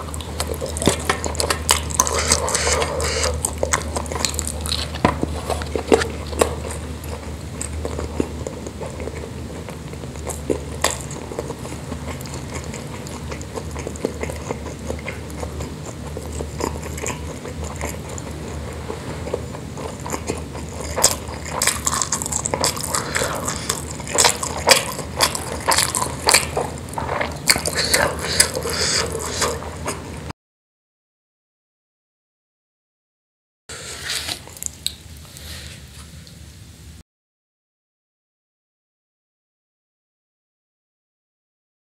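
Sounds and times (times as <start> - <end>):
close chewing and mouth sounds: 0.0 - 30.3, 33.7 - 36.4.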